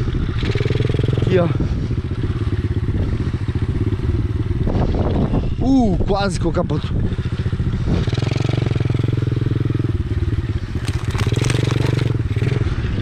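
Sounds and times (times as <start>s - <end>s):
small motorcycle engine running: 0.0s - 5.7s, 6.7s - 13.0s
tyres crackling over dry sticks: 10.7s - 12.5s.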